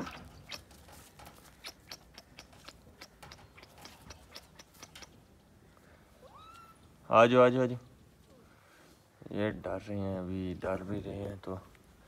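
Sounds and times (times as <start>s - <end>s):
paws scratching on dirt and straw: 0.0s - 5.2s.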